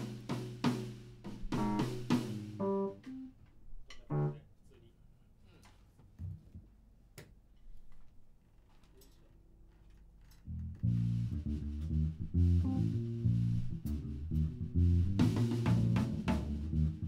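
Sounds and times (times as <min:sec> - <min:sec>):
electric bass guitar line: 0:10.5 - 0:17.0.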